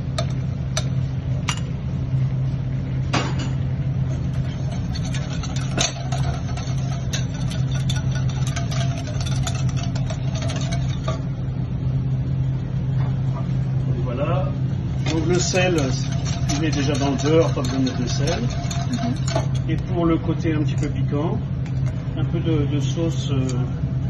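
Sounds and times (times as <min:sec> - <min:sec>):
low machine hum: 0:00.0 - 0:24.0
whisk scraping a saucepan: 0:04.1 - 0:11.4, 0:15.0 - 0:21.0.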